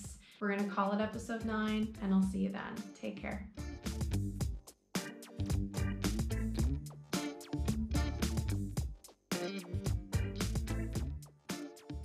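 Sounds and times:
music with drum beat and bass: 0:01.2 - 0:02.4, 0:03.6 - 0:12.0.

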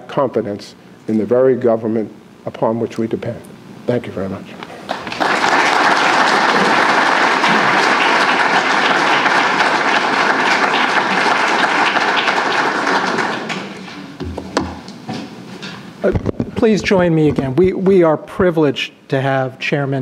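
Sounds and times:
audience applauding: 0:04.8 - 0:14.1.

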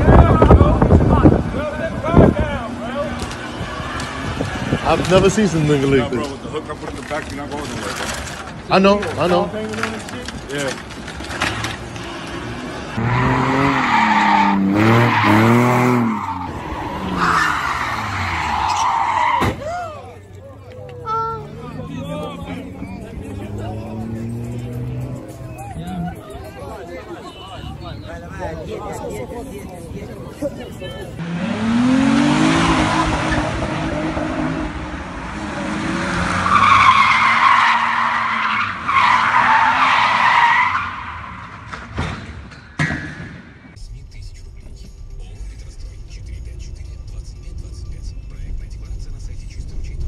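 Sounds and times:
tyres squealing: 0:07.2 - 0:20.0, 0:36.1 - 0:41.5
car engine revving hard: 0:12.1 - 0:18.5, 0:31.2 - 0:40.2.

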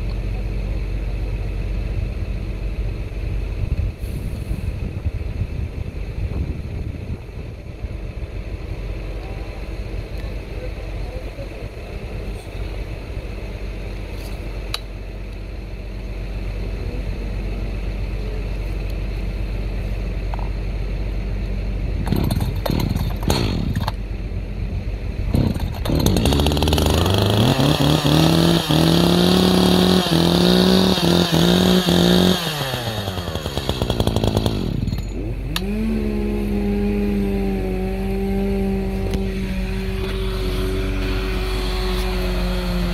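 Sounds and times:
chainsaw revving: 0:22.1 - 0:23.8, 0:25.3 - 0:42.9.

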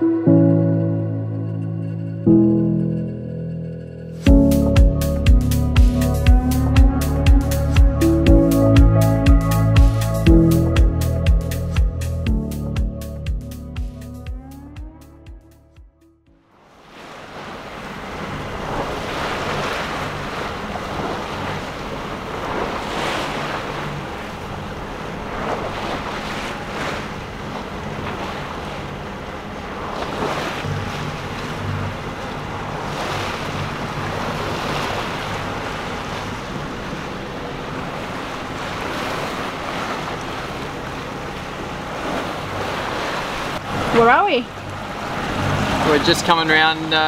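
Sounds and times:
low hum: 0:00.0 - 0:16.5, 0:30.6 - 0:38.9
water rushing along boat hull: 0:04.2 - 0:15.6, 0:16.4 - 0:47.0.

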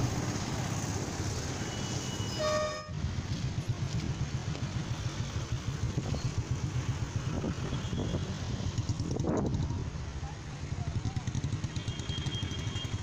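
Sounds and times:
motorcycles passing: 0:00.0 - 0:13.0
road traffic rumble: 0:00.0 - 0:13.0.

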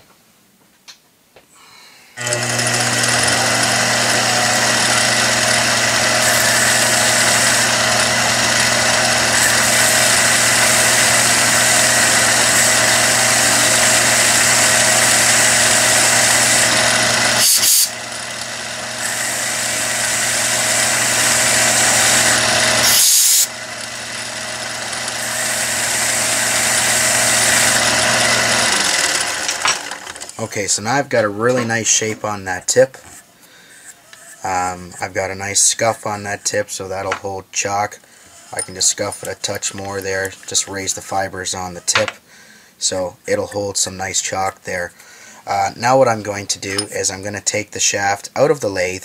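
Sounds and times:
lathe motor running: 0:02.2 - 0:30.4, 0:38.2 - 0:42.2.

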